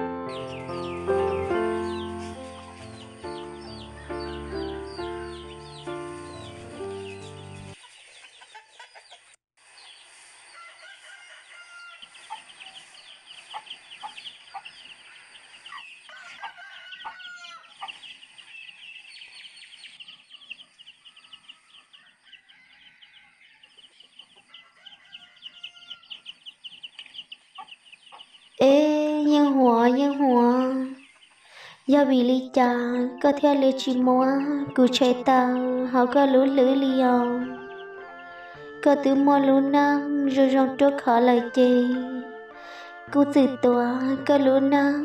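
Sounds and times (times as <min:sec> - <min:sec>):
music phrase: 0:00.0 - 0:07.8
chickens clucking: 0:00.0 - 0:45.0
small bird chirps: 0:00.3 - 0:32.8.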